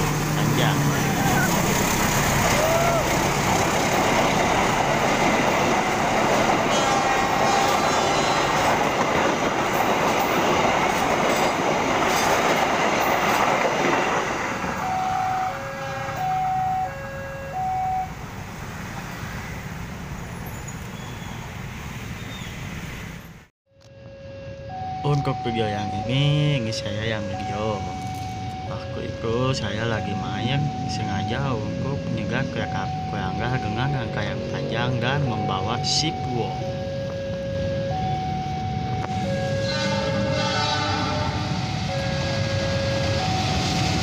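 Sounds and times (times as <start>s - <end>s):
train passing at speed: 0.0s - 23.3s, 38.6s - 44.0s
two-pitch alternating tones: 14.8s - 18.2s.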